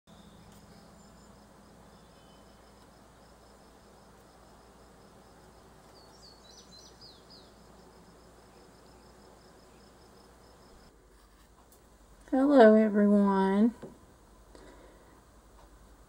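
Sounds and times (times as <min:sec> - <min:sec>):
insect-like high chirp: 0:00.1 - 0:10.9.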